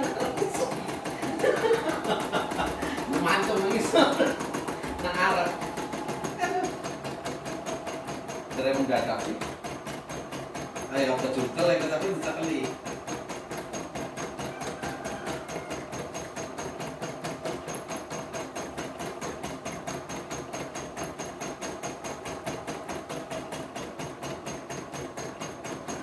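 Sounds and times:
machine hum: 0:00.0 - 0:14.1
embroidery machine needle clattering: 0:00.0 - 0:26.0.

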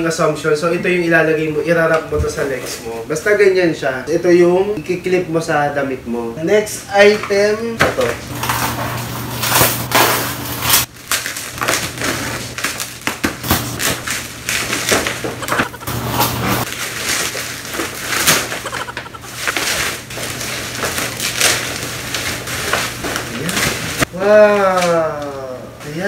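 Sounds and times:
plastic packaging crinkling: 0:08.4 - 0:24.1.

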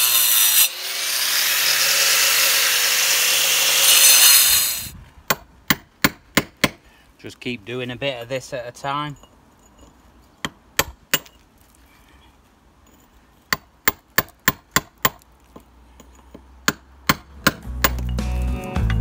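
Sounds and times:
hammer and chisel on concrete: 0:13.5 - 0:18.2
guitar music: 0:17.6 - 0:19.0.

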